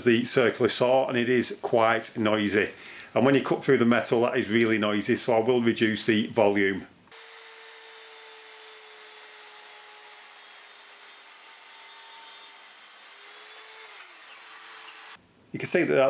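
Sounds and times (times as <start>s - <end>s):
circular saw cutting plywood: 7.1s - 15.2s.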